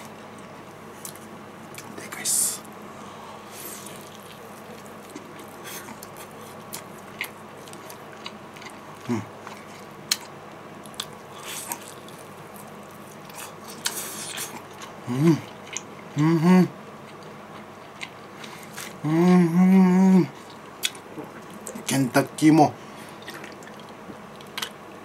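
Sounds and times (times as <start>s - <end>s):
biting crispy fried chicken: 3.6s - 15.9s
chewing: 3.6s - 16.2s, 17.0s - 19.0s, 20.3s - 21.9s, 23.1s - 24.8s
person humming: 9.1s - 9.3s, 15.0s - 15.5s, 16.1s - 16.8s, 19.0s - 20.3s.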